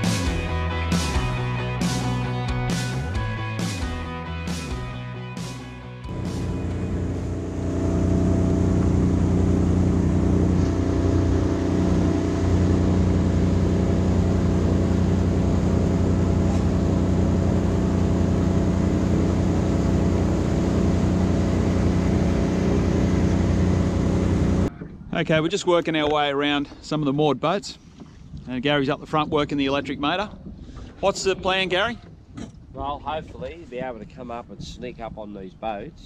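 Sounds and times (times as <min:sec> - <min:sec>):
outboard motor running: 0:00.0 - 0:24.8
water rushing past hull: 0:00.0 - 0:33.9.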